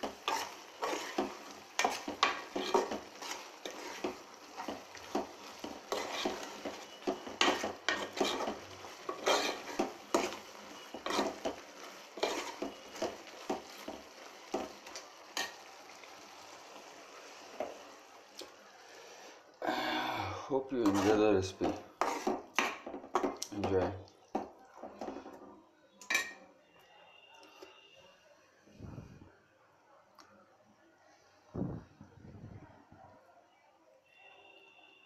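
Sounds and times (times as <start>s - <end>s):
metal spoon scraping pot: 0.0s - 11.6s, 12.2s - 14.0s, 20.8s - 23.3s
thick curry sloshing: 0.0s - 14.8s.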